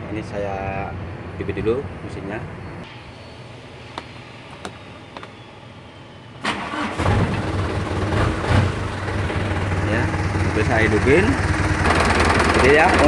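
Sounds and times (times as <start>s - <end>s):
diesel engine cranking and running: 6.4s - 13.0s.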